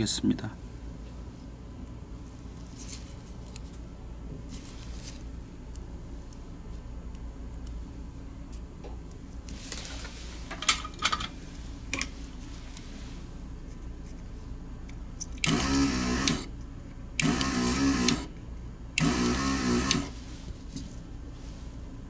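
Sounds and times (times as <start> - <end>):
desoldering vacuum pump: 11.4 - 22.0.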